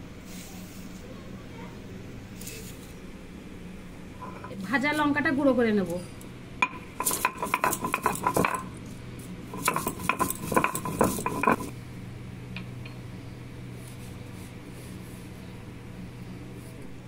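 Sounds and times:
low steady hum: 0.8s - 17.0s
grinding stone clattering knocks: 6.6s - 8.8s, 9.5s - 11.7s.

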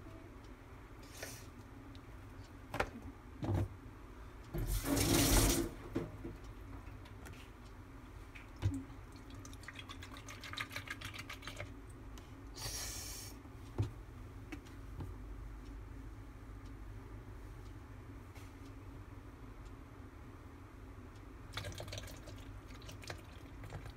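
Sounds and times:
short hissing rub: 12.6s - 13.4s.

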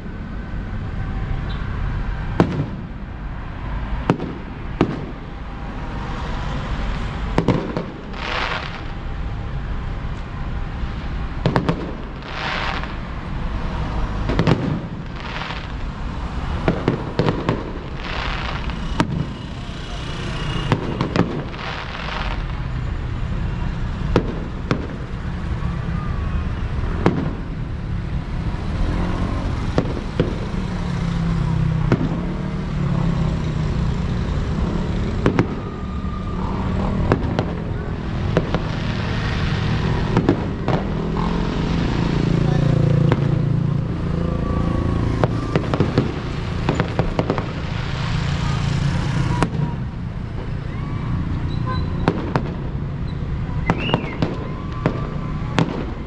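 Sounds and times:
fireworks bangs: 1.9s - 10.1s, 10.7s - 56.0s
crackling hiss: 6.2s - 35.7s.

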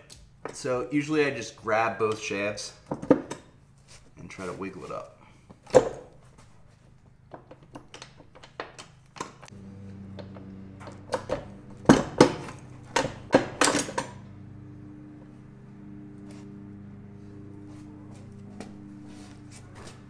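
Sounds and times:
low steady hum: 9.4s - 20.0s.

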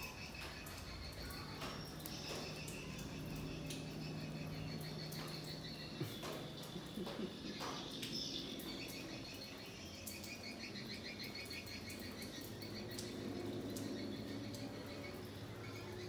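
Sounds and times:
insects chirping: 0.0s - 16.0s.

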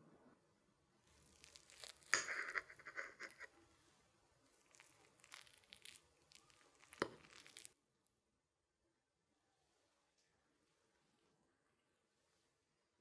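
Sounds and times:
fork crackling through cake: 1.1s - 3.5s, 4.5s - 7.8s.

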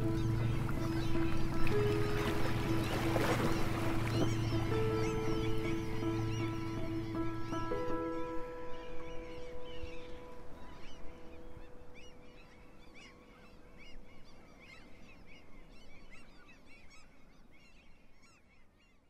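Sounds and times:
background music: 0.0s - 12.4s
birds chirping and calling: 0.0s - 18.0s.

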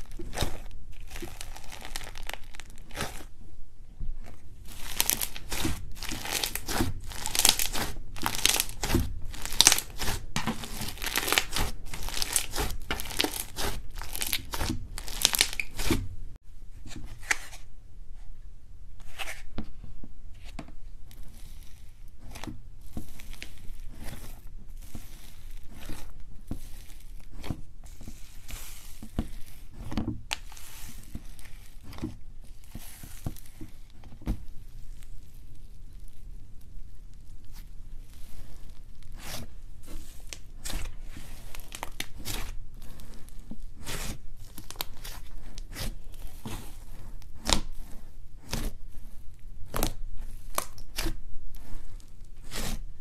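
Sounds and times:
slime pressed in plastic tub: 0.0s - 3.3s, 4.6s - 16.1s, 39.1s - 48.8s.

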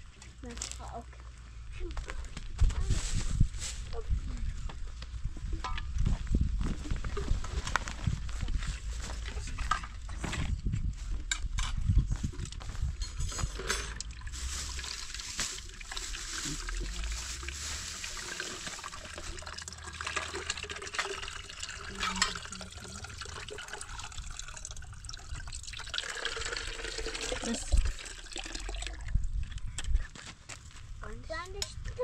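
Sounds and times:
water trickling: 13.9s - 29.6s.

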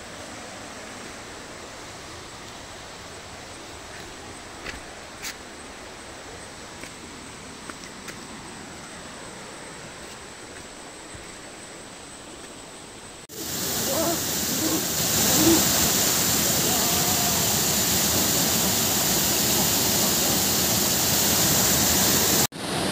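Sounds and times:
running water hiss: 0.0s - 22.9s
waterfall pouring into pool: 13.3s - 22.9s.

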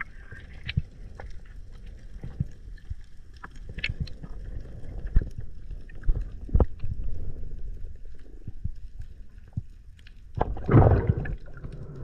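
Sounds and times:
water rushing past underwater: 10.4s - 12.0s.

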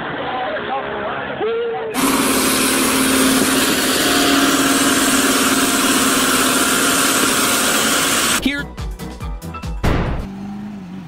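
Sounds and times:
diesel tractor engine droning: 2.0s - 8.4s.

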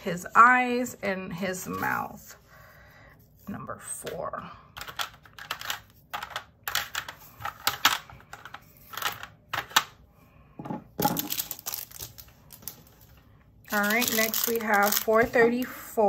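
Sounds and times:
plastic bags rustling: 11.0s - 15.8s.

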